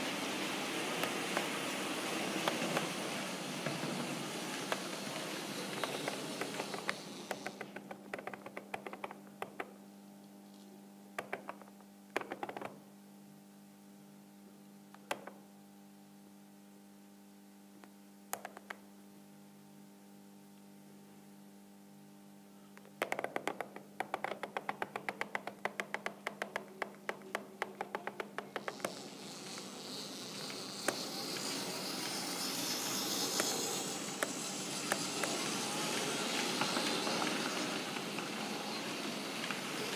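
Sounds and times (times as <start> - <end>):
rolling stock hiss: 0.0 - 7.8, 27.3 - 39.9
wheels clicking over rail joints: 0.6 - 8.8, 25.9 - 39.9
electric motor humming: 28.6 - 39.9.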